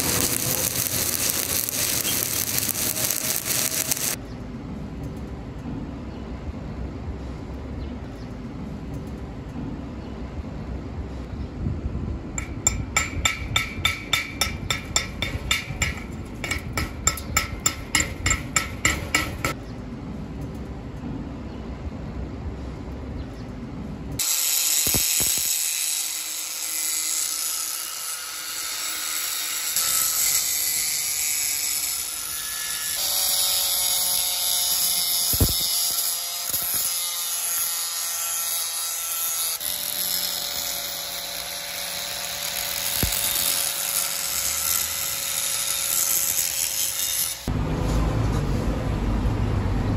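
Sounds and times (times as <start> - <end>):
angle grinder grinding metal: 0.0 - 4.2, 24.2 - 47.5.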